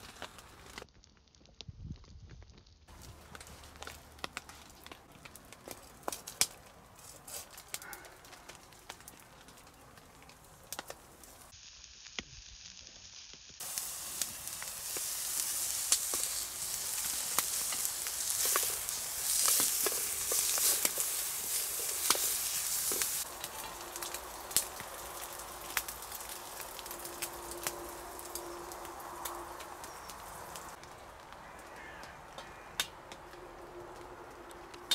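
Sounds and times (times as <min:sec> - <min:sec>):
fire crackling: 0:00.0 - 0:34.9
onions sizzling in a frying pan: 0:10.6 - 0:30.9.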